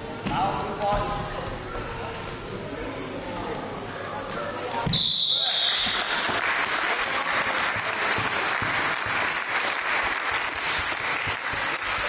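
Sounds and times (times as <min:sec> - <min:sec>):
spectators applauding: 0:05.7 - 0:12.0.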